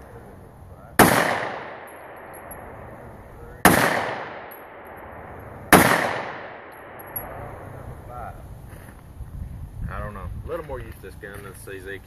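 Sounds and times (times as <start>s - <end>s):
pistol shots: 1.0s - 3.0s, 3.6s - 7.5s
gunshot echo rolling: 1.0s - 7.6s.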